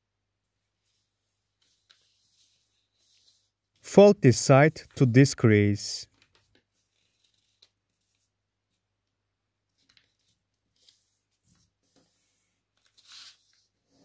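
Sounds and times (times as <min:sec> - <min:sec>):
paper being folded: 0:00.8 - 0:03.8, 0:06.1 - 0:08.8, 0:09.7 - 0:13.8.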